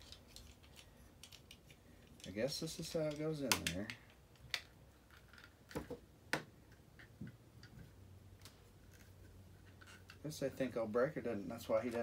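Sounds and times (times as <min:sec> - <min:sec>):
plastic toy parts clicking: 0:00.0 - 0:02.3, 0:03.0 - 0:05.8.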